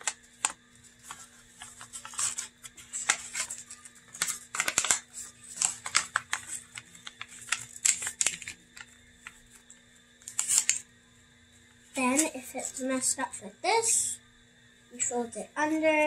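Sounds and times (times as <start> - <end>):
paper rustling and crinkling: 0.0 - 10.8, 11.9 - 12.8.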